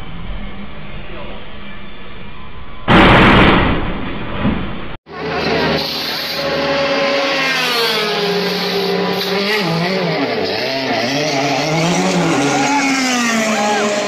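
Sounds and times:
race car engines revving: 0:05.1 - 0:14.0.

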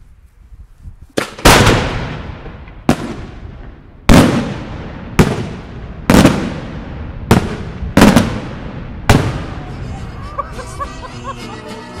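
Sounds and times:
firework booms echoing: 0:01.2 - 0:09.8.

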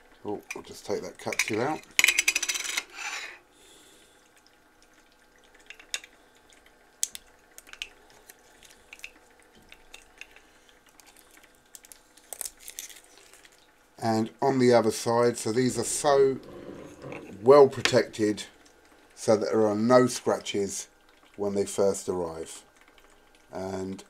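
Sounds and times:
plastic film rustling: 0:11.8 - 0:13.7.

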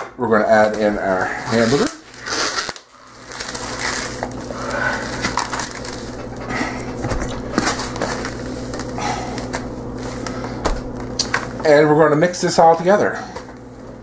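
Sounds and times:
plastic packaging crinkling: 0:00.6 - 0:06.4
low hum: 0:02.9 - 0:11.6.

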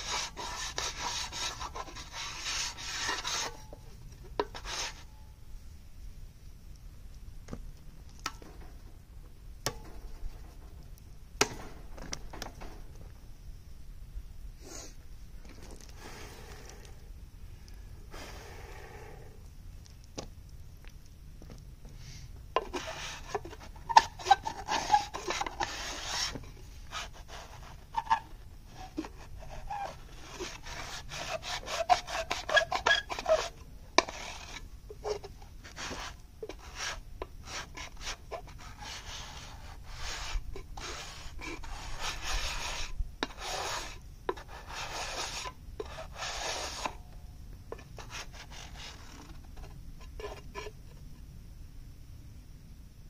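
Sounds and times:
tool scraping clay on metal tray: 0:00.0 - 0:05.2, 0:22.6 - 0:47.0, 0:47.7 - 0:50.8.

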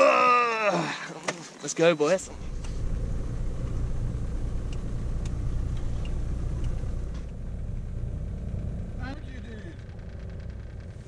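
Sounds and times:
motorboat engine humming: 0:02.2 - 0:11.0.

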